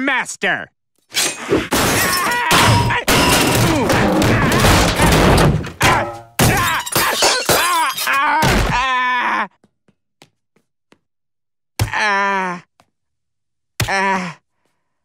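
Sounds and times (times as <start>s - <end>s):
glass crashing and shattering: 1.1s - 8.2s.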